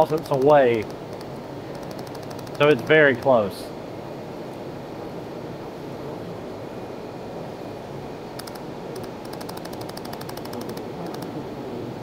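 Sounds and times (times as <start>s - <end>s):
laser welder ticks: 0.0s - 3.4s, 8.4s - 11.3s
machine hum: 0.0s - 12.0s.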